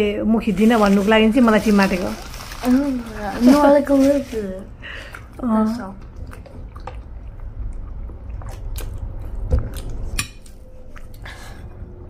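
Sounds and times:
chewing crunchy snack: 6.0 - 10.1.

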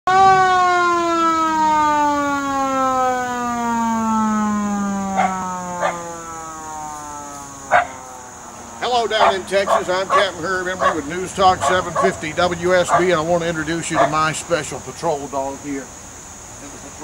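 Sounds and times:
mechanical siren winding down: 0.1 - 9.7.

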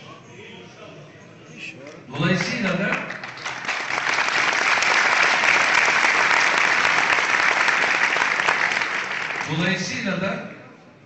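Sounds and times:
audience applauding: 2.4 - 9.6.

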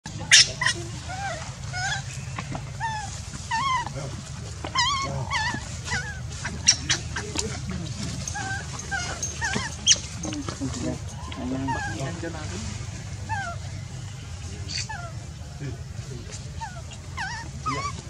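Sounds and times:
steady low hum: 0.1 - 18.0
baby monkey whimpering: 0.3 - 2.2, 2.8 - 4.0, 4.7 - 7.7, 8.3 - 10.4, 11.0 - 12.3, 13.2 - 13.7, 14.7 - 15.2, 16.5 - 18.0.

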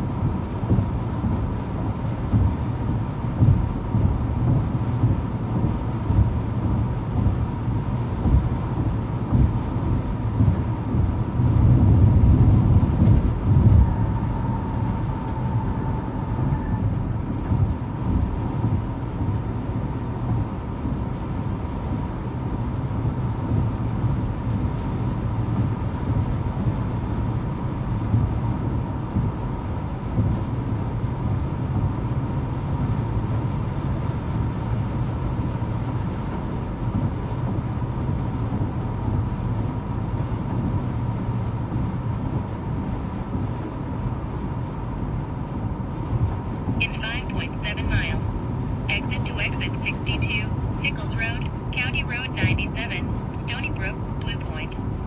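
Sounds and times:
car interior road rumble: 0.0 - 55.0.

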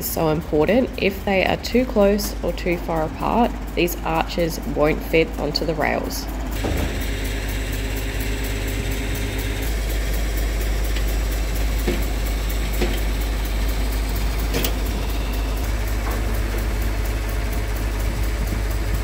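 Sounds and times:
engine idling: 0.0 - 19.0.

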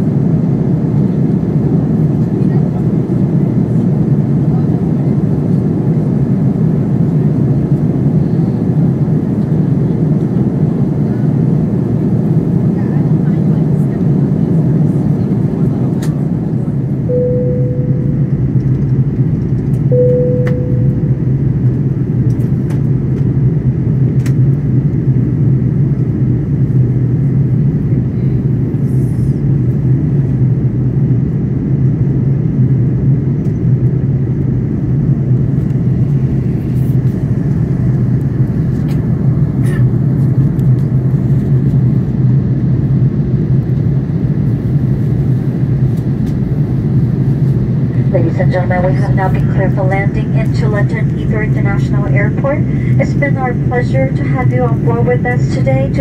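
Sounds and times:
airplane cabin engine noise: 0.0 - 56.0
chime tones: 17.1 - 18.4, 19.9 - 21.1.

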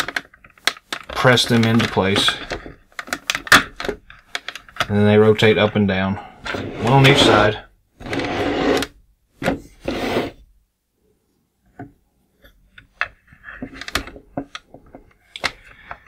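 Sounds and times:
plastic toy rubbing and scraping: 6.4 - 10.4.

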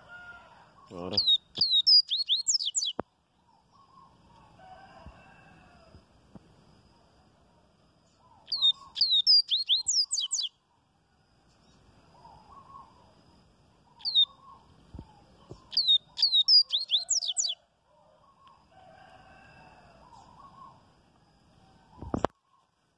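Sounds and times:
bird song with high down-slurred notes: 0.9 - 4.2, 8.1 - 10.6, 13.9 - 17.6.

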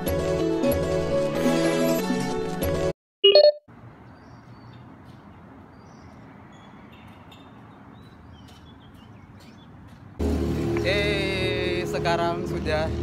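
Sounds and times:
distant traffic hum: 3.7 - 13.0.

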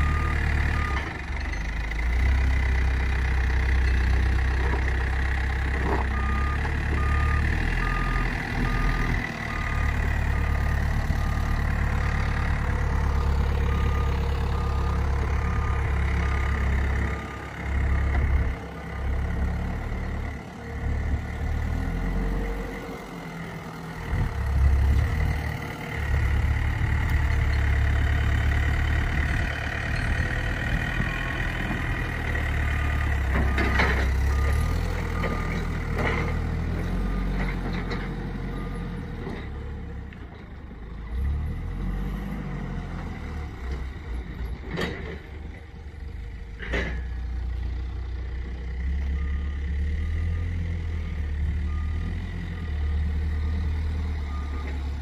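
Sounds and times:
reversing alarm beeping: 0.0 - 1.2, 5.9 - 19.3, 29.9 - 39.1, 49.0 - 55.0
heavy vehicle engine running: 0.0 - 55.0.

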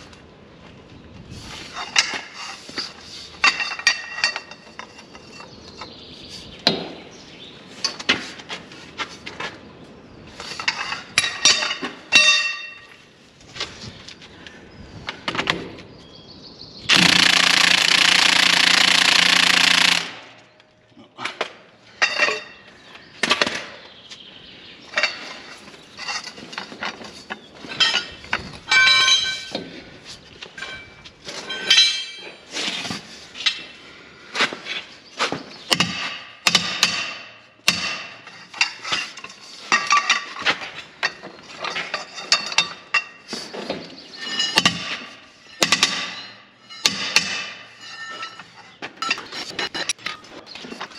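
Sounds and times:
impact wrench hammering: 16.9 - 20.3
metallic clinks and knocks: 24.9 - 29.6, 45.4 - 50.9.

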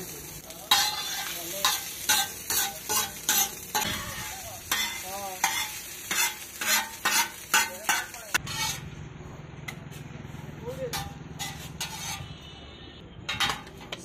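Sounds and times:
food sizzling: 0.0 - 9.0, 10.8 - 12.4
metal spatulas scraping on griddle: 0.5 - 9.0, 9.7 - 12.6, 13.3 - 14.0.

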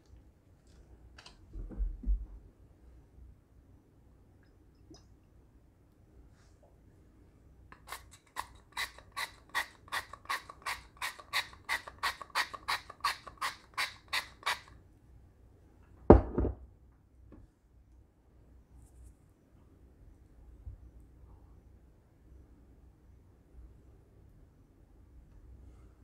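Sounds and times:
bottle thump on counter: 16.1 - 16.6.

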